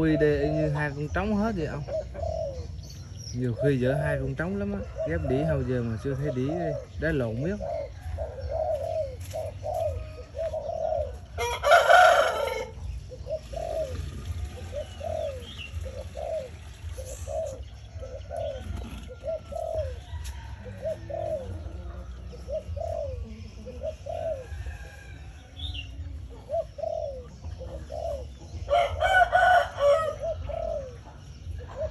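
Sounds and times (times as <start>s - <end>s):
doves cooing: 0.0s - 31.9s
rooster crowing: 11.4s - 12.8s, 28.7s - 30.3s.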